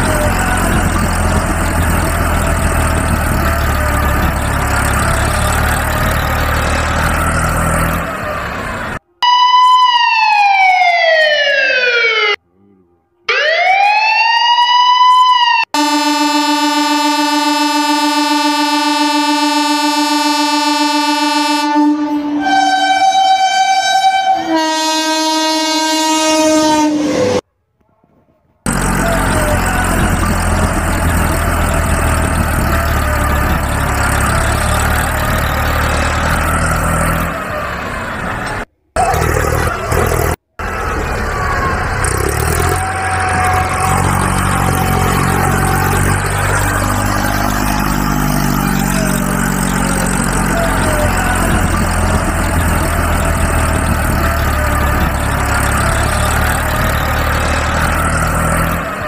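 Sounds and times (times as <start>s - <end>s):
heavy vehicle engine running: 0.0s - 9.2s, 28.7s - 59.0s.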